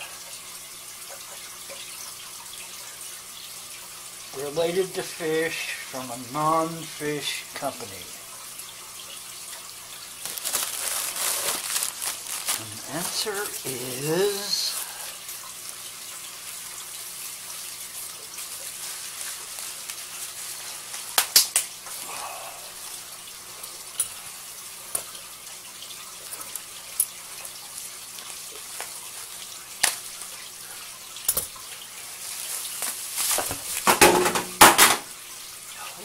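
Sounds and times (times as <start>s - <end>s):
bubble wrap crinkling: 10.1s - 15.2s, 17.5s - 22.1s, 27.4s - 30.4s, 32.0s - 33.9s.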